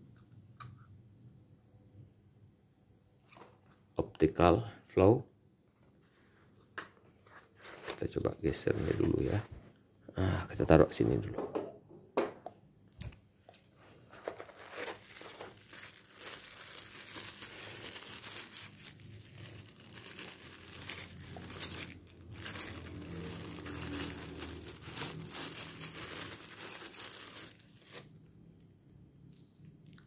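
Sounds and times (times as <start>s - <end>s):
paper crinkling and rustling: 7.1s - 9.6s, 13.5s - 28.2s.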